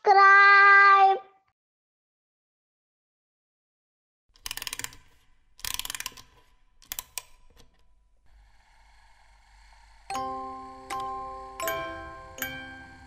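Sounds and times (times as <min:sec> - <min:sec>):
music box winding clicks: 0:04.4 - 0:07.9, 0:10.8 - 0:11.8
music box playing: 0:10.1 - 0:13.0.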